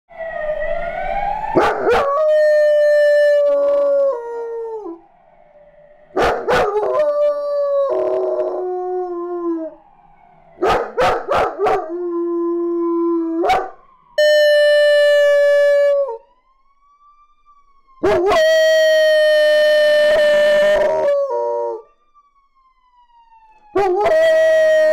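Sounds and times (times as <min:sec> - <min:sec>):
faint police siren wail: 0:00.1 - 0:24.9
puppy howling: 0:01.6 - 0:05.0, 0:06.2 - 0:09.8, 0:10.6 - 0:13.8, 0:18.0 - 0:21.8, 0:23.8 - 0:24.9.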